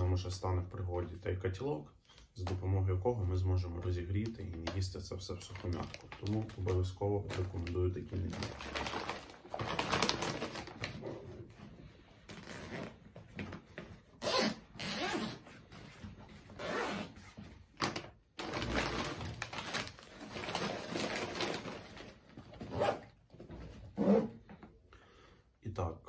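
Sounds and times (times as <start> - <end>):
fabric and plastic rustling: 4.2 - 24.6.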